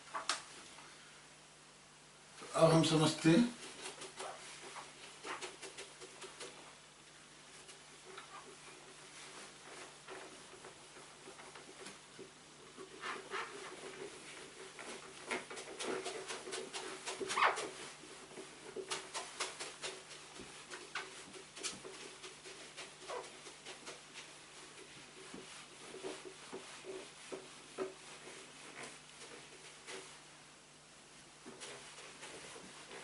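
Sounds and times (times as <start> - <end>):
eraser rubbing on whiteboard: 7.7 - 30.3, 31.5 - 33.0.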